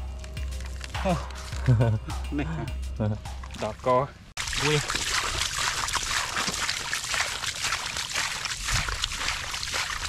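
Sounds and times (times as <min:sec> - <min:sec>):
shallow water splashing: 0:04.4 - 0:10.0.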